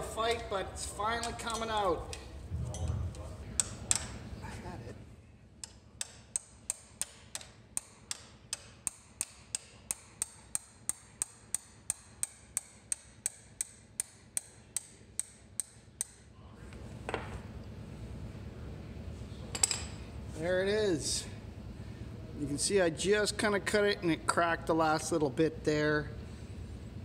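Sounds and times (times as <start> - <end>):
hammer tapping on metal: 5.6 - 16.2.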